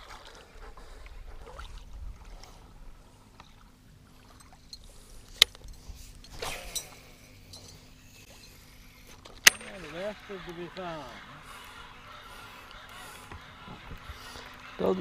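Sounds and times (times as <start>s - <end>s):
waves lapping against boat hull: 0.0s - 15.0s
fishing rod whoosh: 5.9s - 8.4s.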